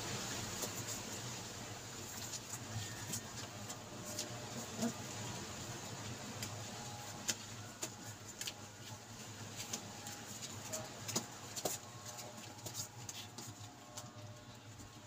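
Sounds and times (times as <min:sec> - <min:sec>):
paws scratching on cardboard: 0:02.0 - 0:05.2, 0:06.3 - 0:15.0.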